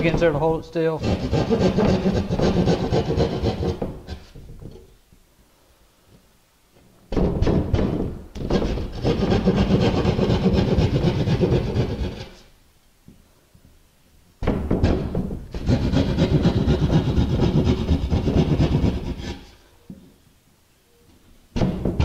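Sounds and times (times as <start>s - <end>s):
saw cutting through drywall: 1.0s - 4.4s, 8.4s - 12.5s, 15.5s - 19.6s.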